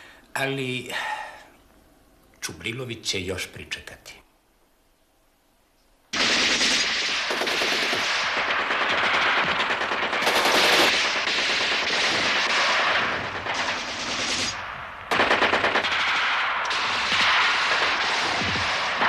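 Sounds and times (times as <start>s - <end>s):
rifle shots: 6.1s - 19.0s
machine-gun bursts: 6.2s - 19.0s.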